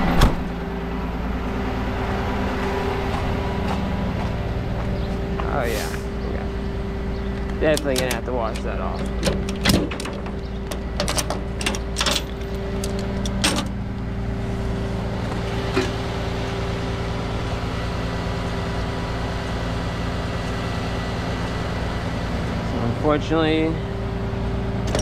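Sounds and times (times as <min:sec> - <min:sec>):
tow truck mechanical drone: 0:00.0 - 0:25.0
sharp metallic clicks and knocks: 0:07.3 - 0:13.8.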